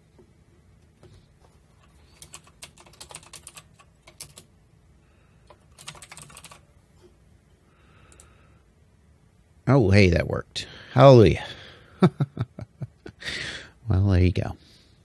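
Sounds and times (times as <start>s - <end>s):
typing on computer keyboard: 1.8s - 4.5s, 5.5s - 6.6s.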